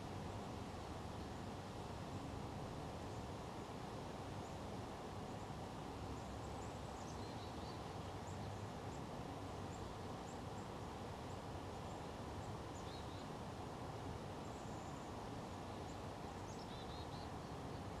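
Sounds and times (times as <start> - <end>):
low background noise: 0.0 - 18.0
small birds chirping: 15.7 - 18.0.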